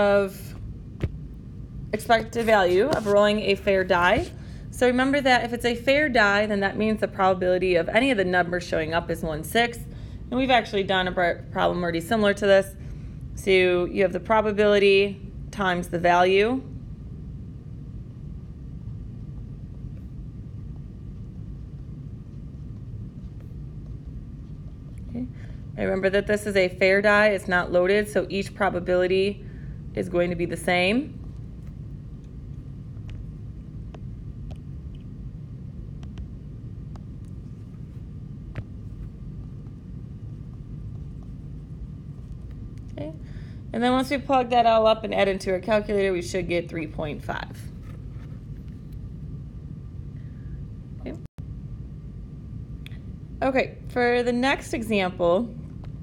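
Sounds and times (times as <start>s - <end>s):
low room rumble: 0.0s - 56.0s.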